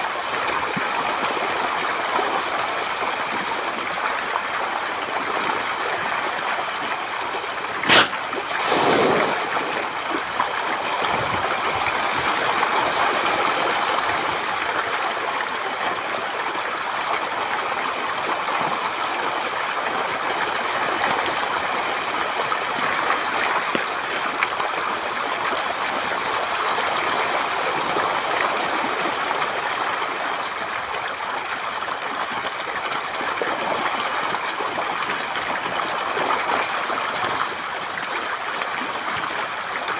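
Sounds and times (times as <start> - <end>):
fish splashing at water surface: 7.6 - 11.1
sharp click: 7.8 - 8.2.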